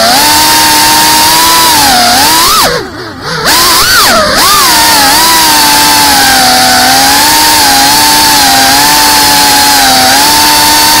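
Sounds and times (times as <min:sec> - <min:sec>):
drone propellers whining: 0:00.0 - 0:11.0.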